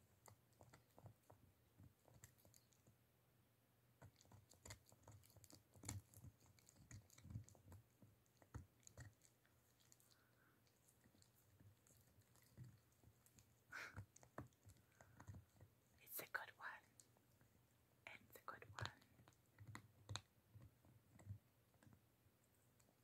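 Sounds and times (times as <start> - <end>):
dog gnawing on a chew: 0.0 - 2.9, 4.0 - 16.0, 18.7 - 22.0.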